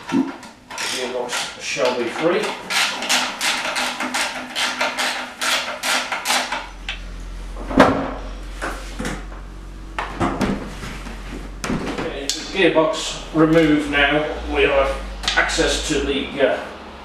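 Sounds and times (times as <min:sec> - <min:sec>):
loud metal clunk: 0:07.6 - 0:12.6.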